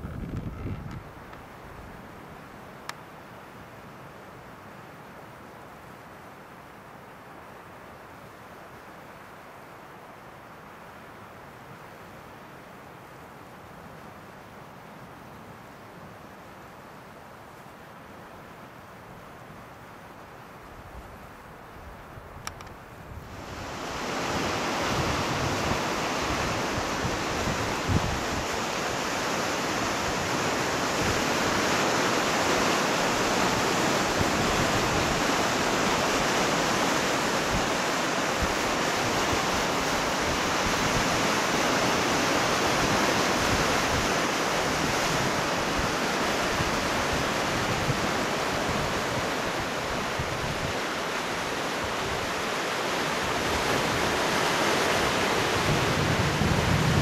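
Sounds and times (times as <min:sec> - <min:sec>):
wind buffeting microphone: 0:00.0 - 0:01.3, 0:21.9 - 0:28.8, 0:55.2 - 0:57.0
sea surf breaking on boulders: 0:23.2 - 0:57.0.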